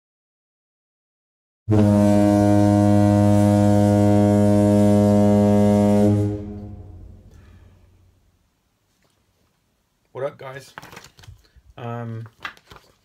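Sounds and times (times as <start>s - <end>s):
deep sustained horn blast: 1.7s - 8.1s.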